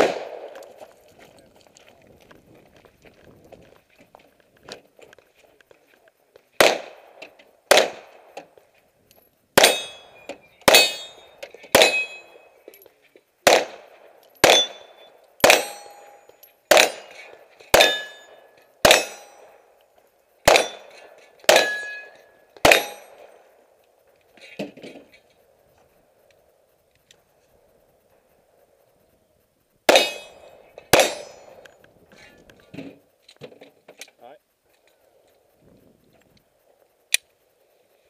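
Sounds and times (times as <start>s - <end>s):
handgun shots: 6.6s - 7.0s, 7.7s - 8.2s, 9.6s - 10.0s, 10.7s - 11.1s, 11.7s - 12.3s, 13.5s - 13.8s, 14.4s - 16.1s, 16.7s - 17.2s, 18.8s - 19.2s, 20.5s - 23.2s, 30.9s - 31.6s
metallic ring of steel targets: 9.6s - 12.9s, 14.4s - 19.6s, 20.5s - 23.4s, 29.9s - 31.7s.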